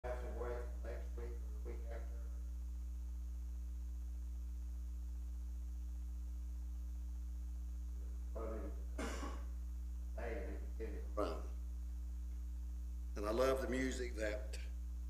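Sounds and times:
man's voice: 0:00.0 - 0:02.3, 0:10.2 - 0:11.5, 0:13.2 - 0:14.7
electrical mains hum: 0:00.0 - 0:15.0.

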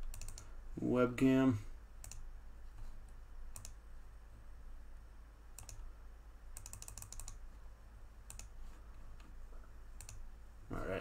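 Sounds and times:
computer keyboard clicks: 0:00.0 - 0:00.5, 0:03.5 - 0:03.8, 0:05.6 - 0:05.8, 0:06.6 - 0:07.4, 0:08.3 - 0:08.5, 0:10.0 - 0:10.2.

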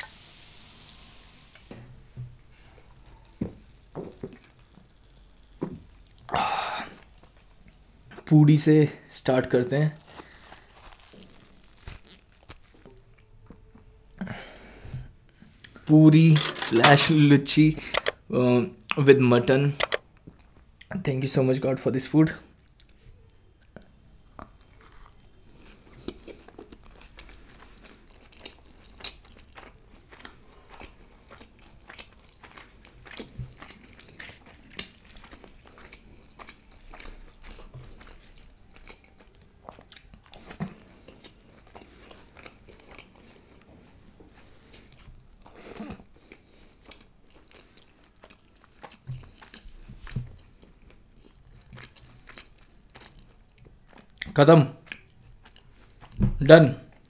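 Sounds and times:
wet chewing clicks: 0:02.7 - 0:06.3, 0:46.2 - 0:49.6, 0:50.3 - 0:56.2.

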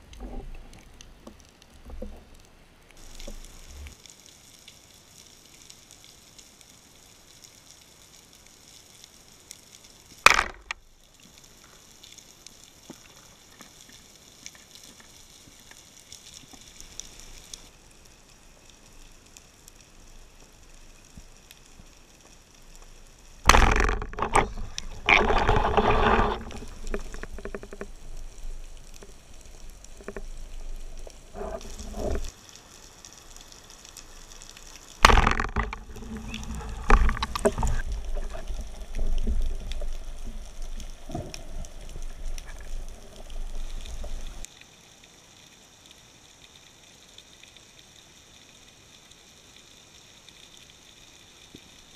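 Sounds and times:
quiet water hiss: 0:00.0 - 0:51.9
muffled underwater water rushing: 0:12.9 - 0:44.6.

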